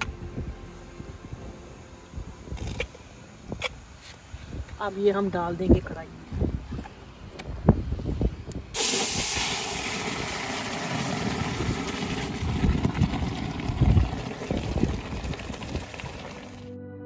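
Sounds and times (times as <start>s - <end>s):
steam hissing and sizzling: 8.7s - 12.7s
low liquid splashing: 8.8s - 16.7s.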